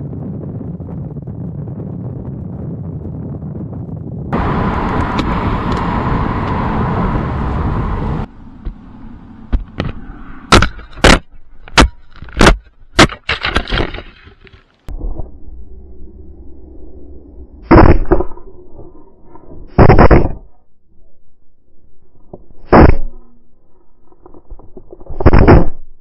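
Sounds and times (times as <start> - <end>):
wind rushing past helmet: 0.0 - 11.5.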